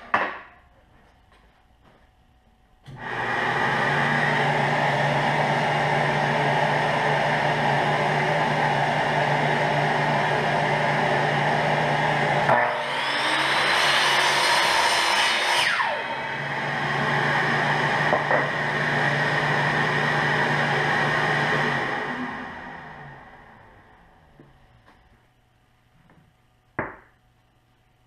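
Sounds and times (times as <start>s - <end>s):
dust vacuum humming: 2.9s - 25.0s
miter saw motor whining: 12.4s - 17.8s
saw cutting wood: 12.4s - 19.2s.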